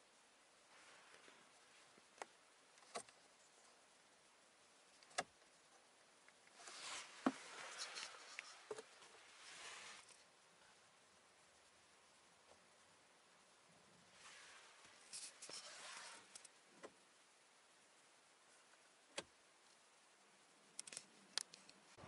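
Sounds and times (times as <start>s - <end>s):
soft rustling: 0.6s - 3.8s, 6.4s - 10.8s, 14.0s - 16.6s.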